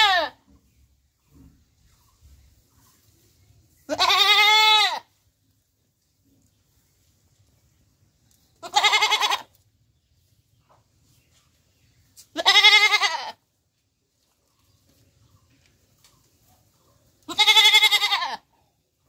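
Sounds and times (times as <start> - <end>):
goat bleating: 0.0 - 0.4, 3.9 - 5.1, 8.6 - 9.6, 12.3 - 13.5, 17.2 - 18.6.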